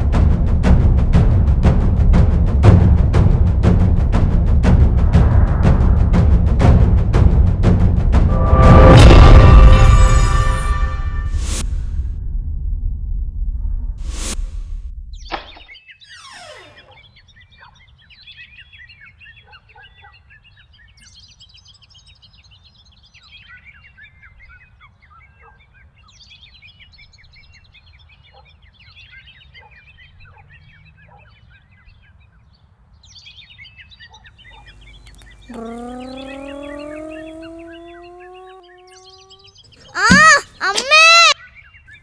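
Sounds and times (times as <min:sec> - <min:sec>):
many birds chirping: 0:15.3 - 0:42.0.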